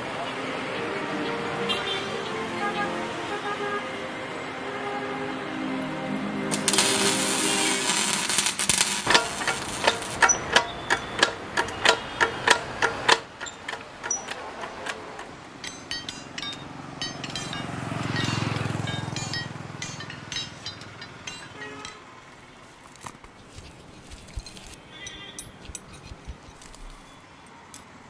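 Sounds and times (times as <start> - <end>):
hammer striking metal: 7.9 - 22.2.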